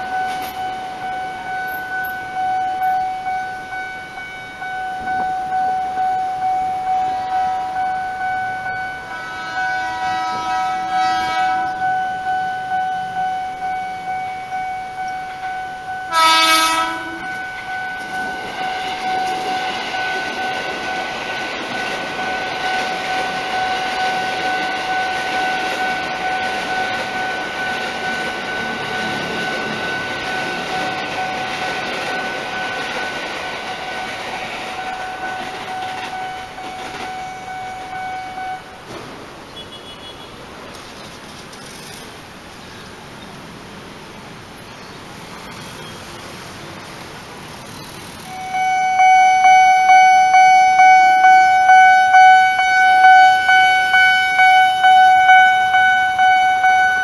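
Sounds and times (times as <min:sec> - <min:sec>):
level crossing warning bell: 0:00.0 - 0:38.9, 0:44.6 - 0:57.0
electric train rumbling past: 0:00.0 - 0:39.6, 0:40.4 - 0:57.0
train horn: 0:08.8 - 0:12.3, 0:15.8 - 0:17.6, 0:48.3 - 0:57.0.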